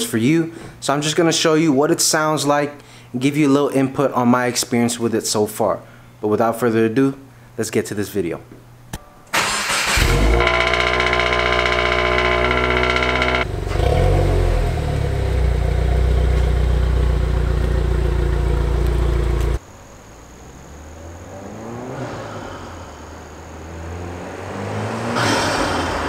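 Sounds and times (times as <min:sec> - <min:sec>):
car engine fast idle: 0:09.4 - 0:13.9, 0:15.0 - 0:19.6
distant car approaching: 0:10.3 - 0:26.0.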